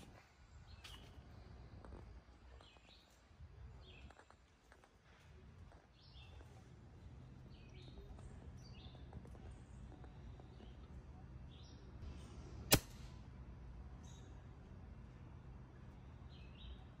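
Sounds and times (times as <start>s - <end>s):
steady low hum: 0.0s - 17.0s
small birds chirping: 0.1s - 12.0s, 15.4s - 17.0s
air rifle shot: 12.6s - 13.2s.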